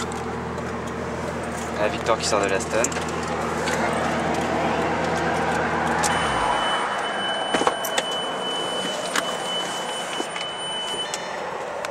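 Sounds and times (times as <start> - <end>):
sports car engine droning: 0.0 - 11.9
wind and road rush: 2.9 - 9.6
thin high whine: 6.0 - 10.0.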